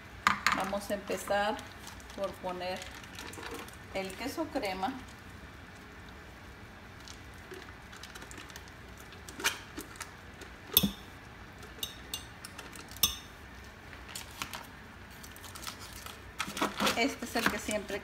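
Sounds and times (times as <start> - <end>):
foil wrapper rustling: 1.4 - 5.9, 7.0 - 10.6, 13.6 - 18.0
spoon knocking glass jar: 10.8 - 11.1, 11.8 - 12.4, 13.0 - 13.4.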